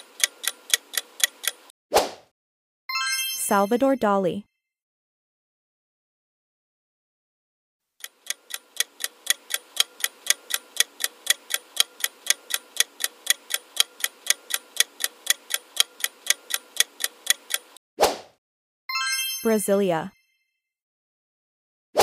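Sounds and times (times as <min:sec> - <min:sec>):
clock ticking: 0:00.0 - 0:01.7, 0:08.0 - 0:17.8.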